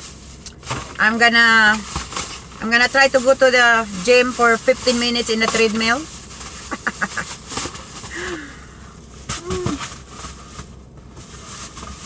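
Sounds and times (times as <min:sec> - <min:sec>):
woman humming: 0:09.4 - 0:09.8.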